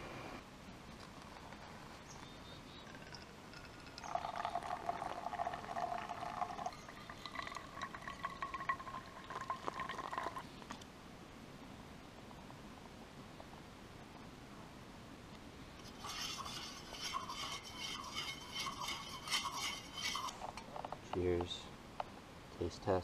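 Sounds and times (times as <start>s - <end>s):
hot water pouring into a cup: 2.8s - 10.5s, 16.0s - 20.4s.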